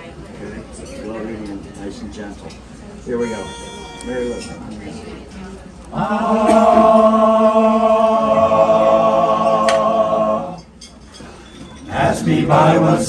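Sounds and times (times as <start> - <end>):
men's chorus holding a chord: 5.9 - 10.7, 11.9 - 13.0.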